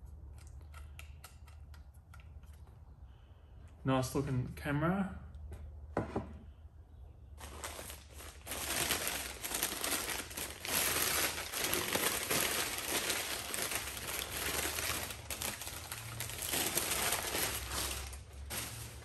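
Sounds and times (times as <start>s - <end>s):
newspaper crumpling: 7.4s - 19.0s.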